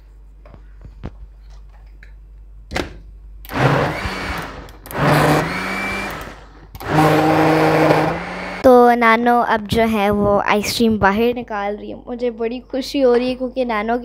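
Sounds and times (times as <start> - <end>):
blender motor whirring: 3.5 - 8.7.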